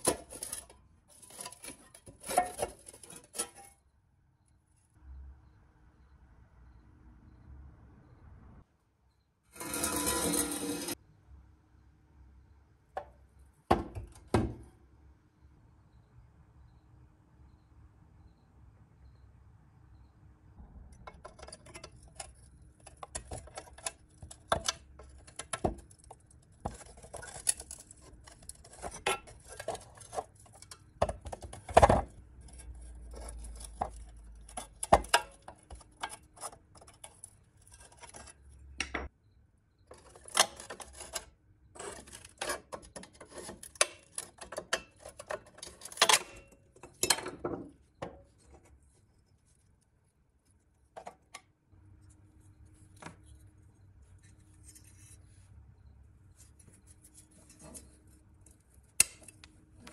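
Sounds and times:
metal pick scraping metal: 0:00.0 - 0:03.8, 0:09.5 - 0:11.0, 0:21.0 - 0:38.9, 0:39.9 - 0:49.0, 0:56.6 - 0:59.9.

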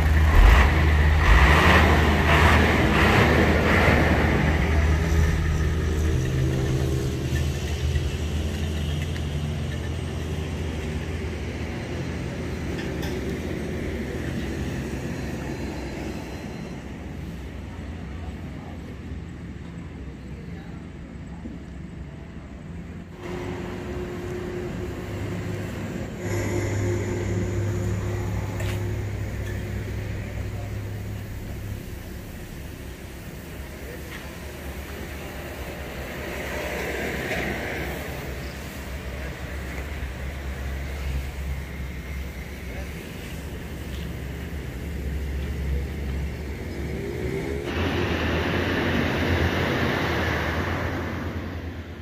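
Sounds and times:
loud rushing noise: 0:00.0 - 0:07.3, 0:23.1 - 0:52.0
diesel truck engine idling: 0:00.0 - 0:12.6, 0:23.1 - 0:47.0.

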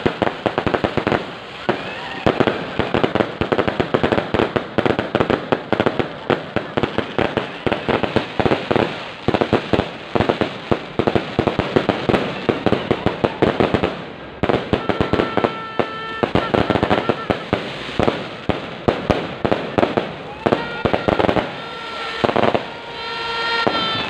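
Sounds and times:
fireworks cracking and banging: 0:00.0 - 0:24.0.

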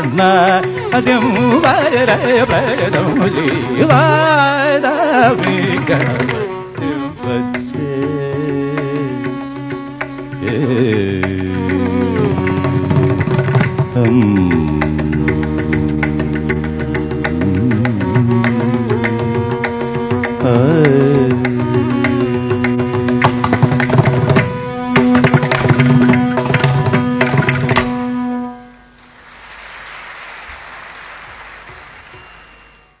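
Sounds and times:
audience applause: 0:29.1 - 0:33.0.

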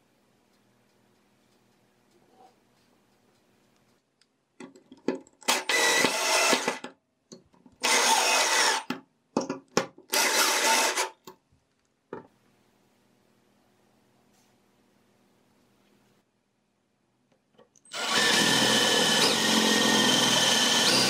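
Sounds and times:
power drill driving screws into wood: 0:05.4 - 0:06.9, 0:07.8 - 0:09.0, 0:10.1 - 0:11.2, 0:17.9 - 0:21.0.

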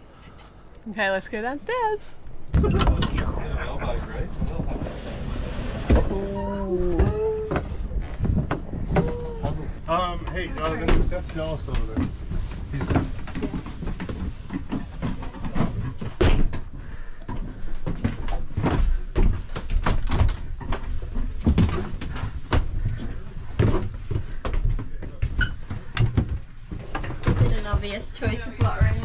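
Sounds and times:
knocks and bumps in wooden cabin: 0:10.6 - 0:29.0.

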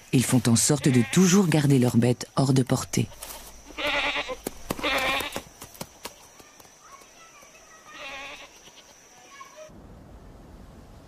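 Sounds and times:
livestock bleating: 0:00.6 - 0:01.4, 0:03.0 - 0:05.4, 0:07.8 - 0:08.8.

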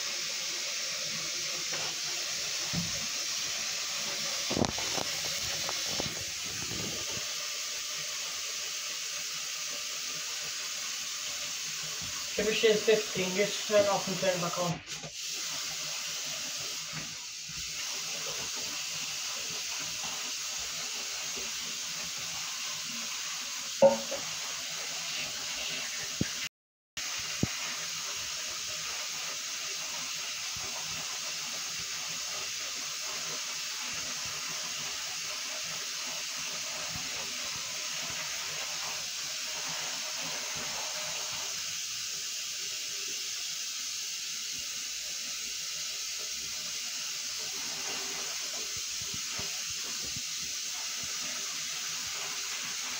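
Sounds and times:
tap running into basin: 0:00.5 - 0:09.1, 0:15.0 - 0:26.4
sharp knock: 0:23.8 - 0:24.2.

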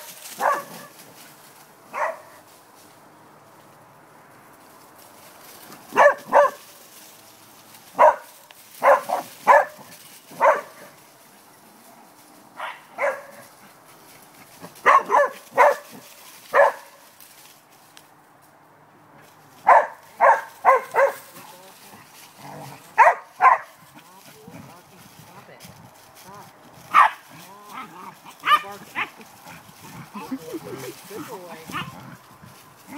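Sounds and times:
dog barking: 0:00.4 - 0:00.9, 0:01.9 - 0:02.4, 0:05.9 - 0:06.6, 0:08.0 - 0:10.9, 0:12.6 - 0:13.4, 0:14.8 - 0:17.0, 0:19.6 - 0:21.3, 0:23.0 - 0:23.8, 0:26.9 - 0:27.2, 0:28.4 - 0:29.2, 0:31.7 - 0:31.9.

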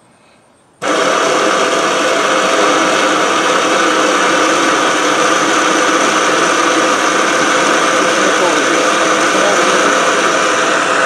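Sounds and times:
electric motor drone: 0:00.8 - 0:11.0.

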